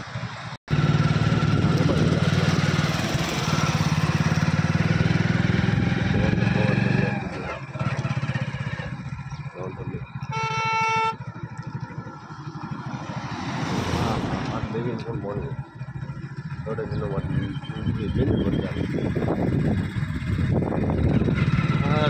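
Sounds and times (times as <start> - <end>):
motorcycle engine running: 0.0 - 22.0
road and wind noise: 0.0 - 22.0
vehicle horn honk: 10.2 - 11.3.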